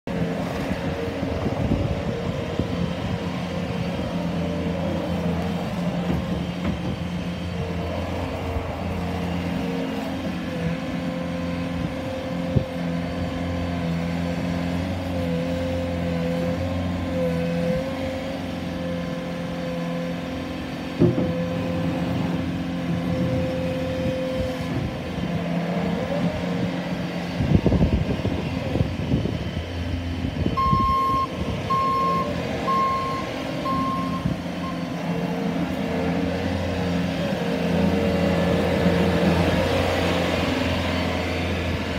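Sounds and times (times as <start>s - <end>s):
diesel engine running: 0.1s - 41.9s
reverse alarm beeps: 30.6s - 34.8s.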